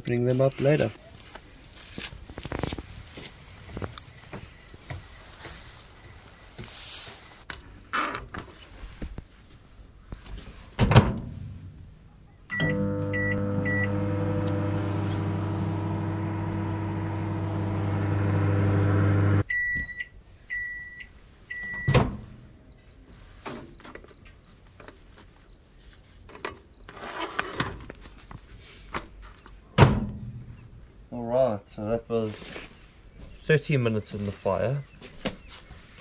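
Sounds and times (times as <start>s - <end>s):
microwave keypad beeps: 12.5s - 14.4s, 19.5s - 22.0s
microwave humming: 12.5s - 19.4s
microwave end beeps: 12.5s - 22.0s.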